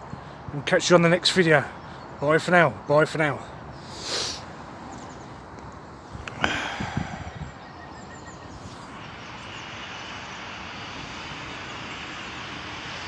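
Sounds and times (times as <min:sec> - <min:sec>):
steady rushing outdoor noise: 0:00.0 - 0:13.0.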